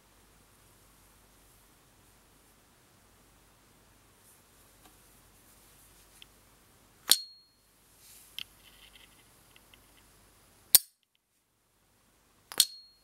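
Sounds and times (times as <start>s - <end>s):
lighter ringing ping: 7.1s - 7.6s.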